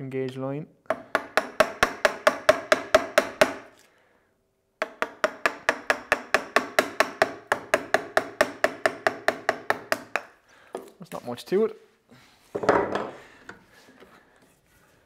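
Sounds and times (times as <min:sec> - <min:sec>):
mallet striking a chisel: 0:00.9 - 0:03.7, 0:04.8 - 0:10.4.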